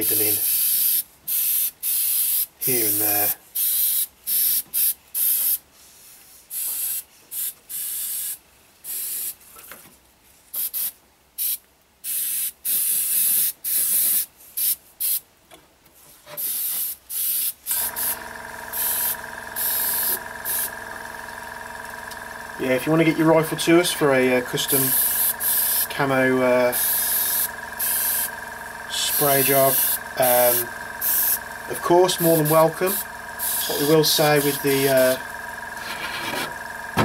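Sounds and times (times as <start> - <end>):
air compressor humming: 0.0 - 5.6, 16.4 - 37.0
airbrush spraying in hissing bursts: 0.0 - 9.4, 10.5 - 15.2, 16.4 - 20.7, 24.6 - 28.3, 28.9 - 35.2.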